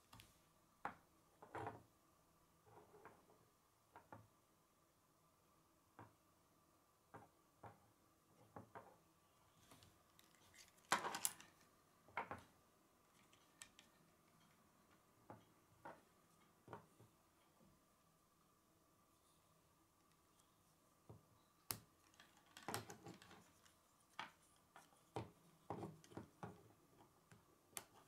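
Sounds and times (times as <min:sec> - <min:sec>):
plastic pieces clicking and clattering: 0:10.2 - 0:11.7, 0:22.0 - 0:23.7.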